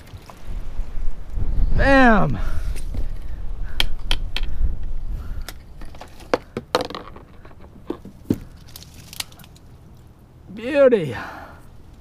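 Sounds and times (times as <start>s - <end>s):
wind rumbling on microphone: 0.0s - 6.3s
branches and leaves snapping: 8.1s - 10.1s.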